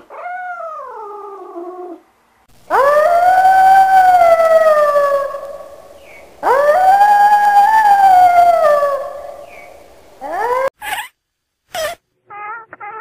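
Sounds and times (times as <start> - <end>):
wolf howling: 2.7 - 10.7.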